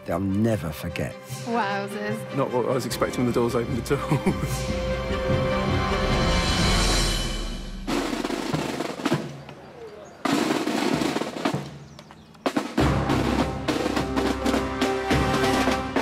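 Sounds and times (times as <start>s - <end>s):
background music: 0.0s - 9.1s, 12.6s - 16.0s
snare drum rolls: 7.8s - 16.0s.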